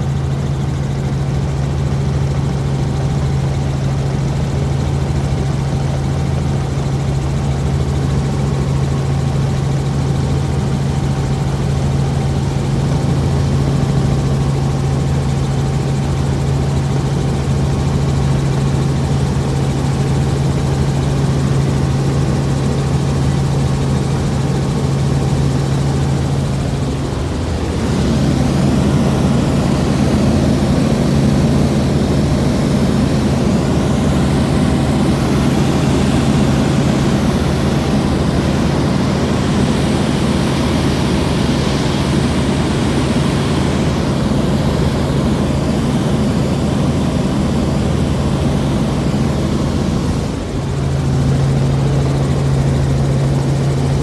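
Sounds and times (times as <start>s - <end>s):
helicopter engine and rotors droning: 0.0s - 54.0s
low hum: 24.4s - 53.7s.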